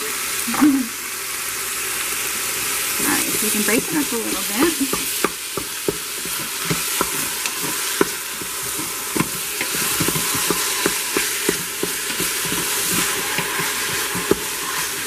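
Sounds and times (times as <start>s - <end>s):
meat sizzling in a pot: 0.0s - 15.0s
spatula scraping and knocking pot: 3.0s - 15.0s.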